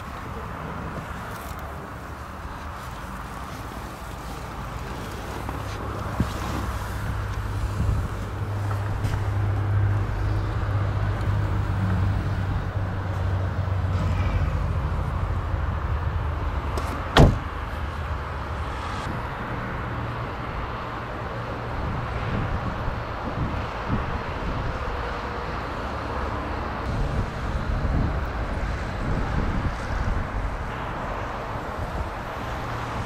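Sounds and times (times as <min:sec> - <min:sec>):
low hum: 0:06.7 - 0:20.8
car door shutting: 0:16.8 - 0:17.6.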